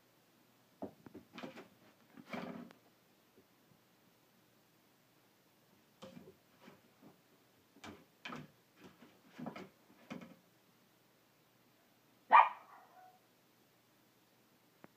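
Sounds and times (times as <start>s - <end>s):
puppy barking: 12.3s - 13.2s.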